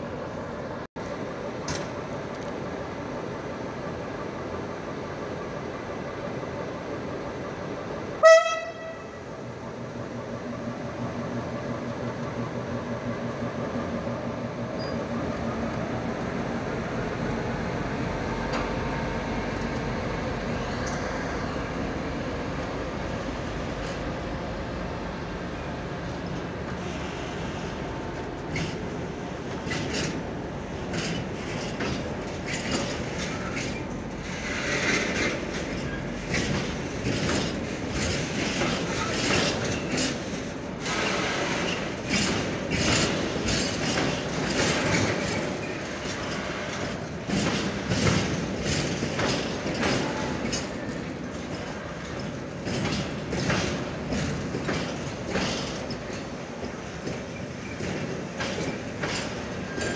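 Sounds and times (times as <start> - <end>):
train rolling rumble: 0.0 - 59.9
train wheels clacking over rail joints: 26.0 - 59.9.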